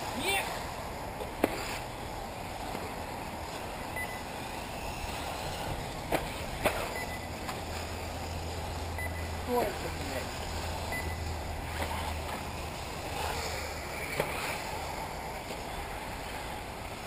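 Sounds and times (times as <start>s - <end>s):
rc cars racing hiss: 4.2s - 7.0s, 7.6s - 17.0s.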